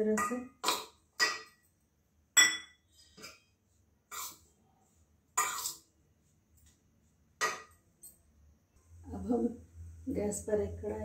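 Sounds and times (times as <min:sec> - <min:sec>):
spoon scraping steel bowl: 0:04.1 - 0:04.5, 0:05.3 - 0:06.0.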